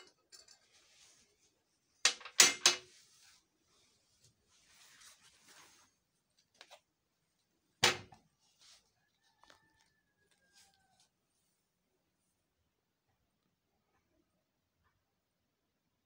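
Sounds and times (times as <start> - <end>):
faint rustling: 2.8 - 6.9.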